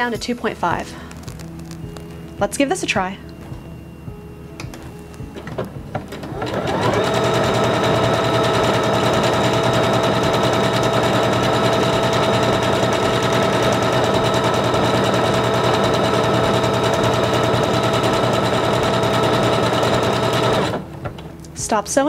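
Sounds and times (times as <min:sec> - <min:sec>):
sewing machine sewing: 0:06.1 - 0:20.9.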